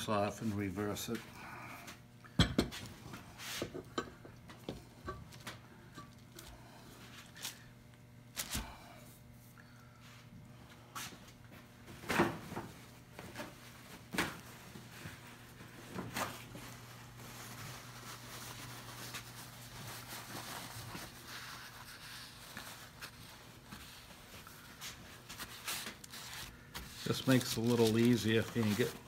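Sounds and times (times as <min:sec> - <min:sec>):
low steady hum: 0:00.0 - 0:29.0
paper towel rubbing on wood: 0:17.0 - 0:29.0.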